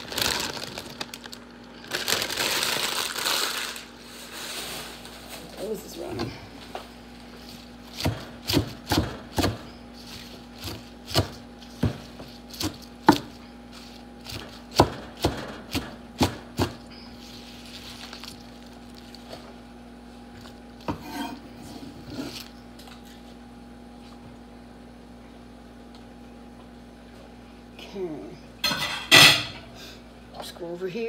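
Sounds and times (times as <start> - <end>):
knife chopping on wooden board: 8.0 - 9.6, 10.6 - 13.4, 14.3 - 16.8.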